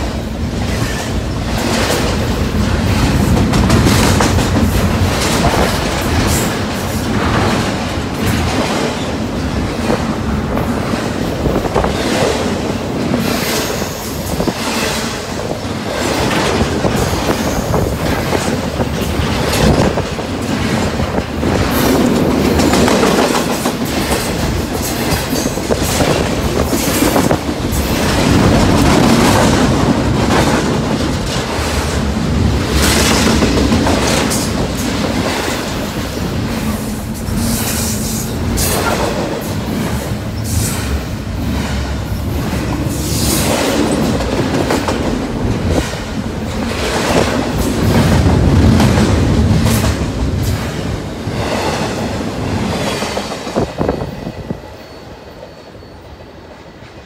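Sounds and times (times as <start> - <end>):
freight train wheels rumbling: 0.0 - 57.0
wheels clicking over rail joints: 0.6 - 37.8.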